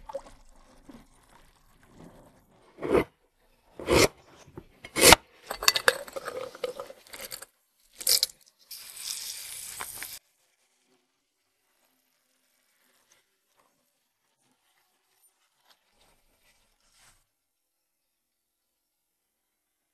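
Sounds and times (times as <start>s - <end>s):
slices dropping into glass jar: 4.9s - 8.4s
granules pouring hiss: 8.1s - 10.2s.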